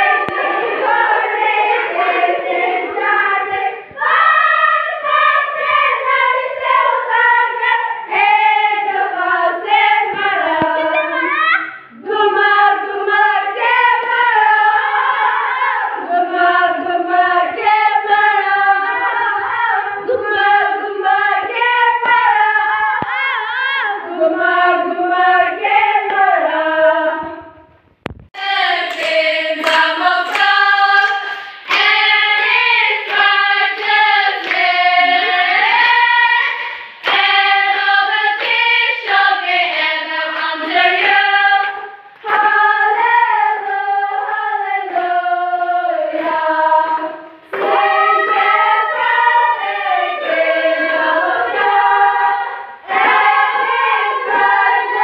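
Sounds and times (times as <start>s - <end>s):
people clapping along: 0.0s - 6.9s, 9.5s - 11.9s, 13.6s - 14.6s, 21.5s - 22.3s, 28.4s - 55.0s
women singing together: 0.0s - 27.8s, 28.4s - 55.0s.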